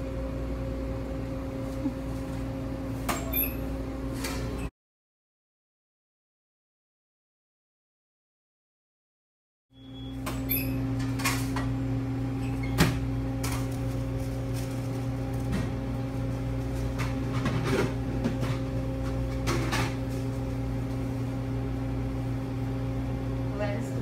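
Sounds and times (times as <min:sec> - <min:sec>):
low machine hum: 0:00.0 - 0:04.7, 0:09.8 - 0:24.0.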